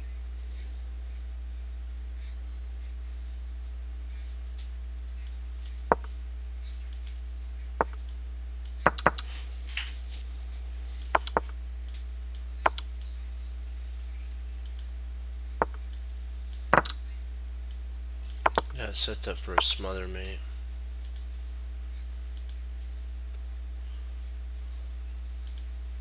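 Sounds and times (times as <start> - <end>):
steady low hum: 0.0 - 26.0
computer mouse clicking: 7.8 - 9.2, 11.1 - 13.1, 14.6 - 14.9, 15.6 - 17.0, 17.7 - 18.8, 21.0 - 21.3, 22.3 - 22.6, 25.4 - 25.7.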